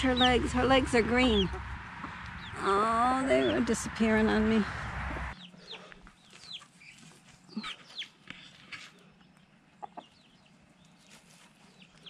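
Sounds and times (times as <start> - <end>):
chicks peeping: 0.0 - 2.6, 5.1 - 12.0.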